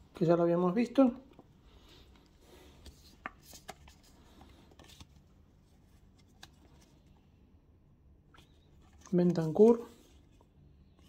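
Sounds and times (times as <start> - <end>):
paper stickers rustling: 8.4 - 10.4.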